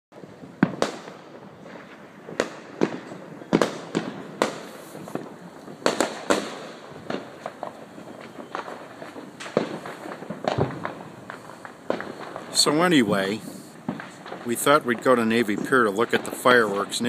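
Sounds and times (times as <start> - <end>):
fireworks bangs and pops: 0.1 - 17.0.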